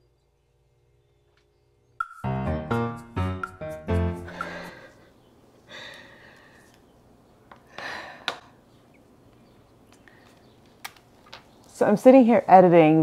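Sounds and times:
piano music: 0:02.0 - 0:04.9
woman breathing out: 0:04.2 - 0:05.1, 0:05.7 - 0:06.7, 0:07.7 - 0:08.6.

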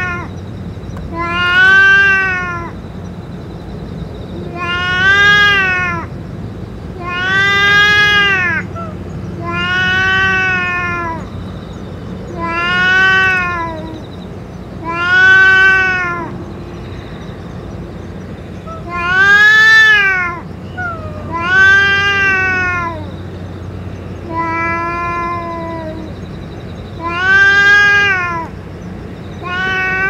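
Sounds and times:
cat yowling: 0:00.0 - 0:00.3, 0:01.1 - 0:02.8, 0:04.5 - 0:06.1, 0:07.0 - 0:11.4, 0:12.3 - 0:14.0, 0:14.8 - 0:16.4, 0:18.6 - 0:23.2, 0:24.3 - 0:26.2, 0:27.0 - 0:28.6, 0:29.4 - 0:30.0.

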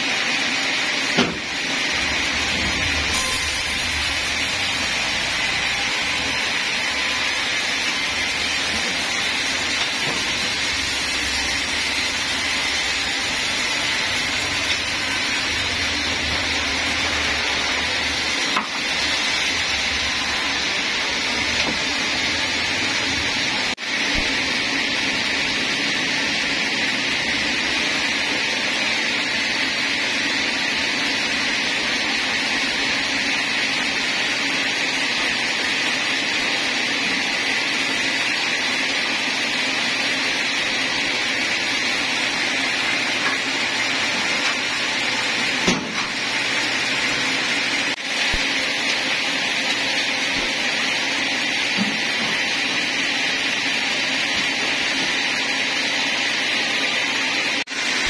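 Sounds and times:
band saw machinery droning: 0:00.0 - 0:58.0.

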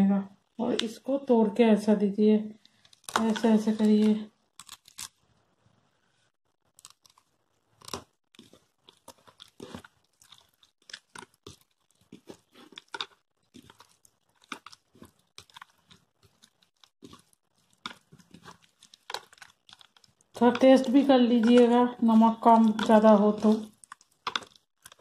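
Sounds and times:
hand squishing food in bowl: 0:06.5 - 0:25.0.

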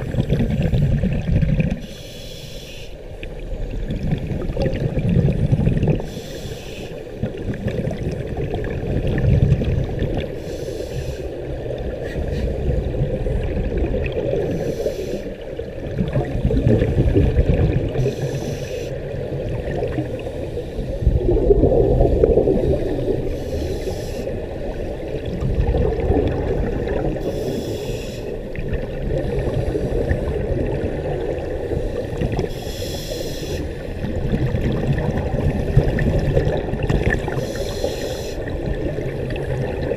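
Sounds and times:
bubbling exhaled air: 0:00.0 - 0:02.2, 0:03.8 - 0:06.5, 0:07.1 - 0:39.9
regulator hissing inhale: 0:01.8 - 0:03.2, 0:06.0 - 0:07.2, 0:10.4 - 0:12.6, 0:14.5 - 0:15.6, 0:17.9 - 0:19.1, 0:20.2 - 0:21.0, 0:22.6 - 0:24.6, 0:27.2 - 0:28.4, 0:29.3 - 0:30.6, 0:31.7 - 0:33.9, 0:37.3 - 0:38.6.

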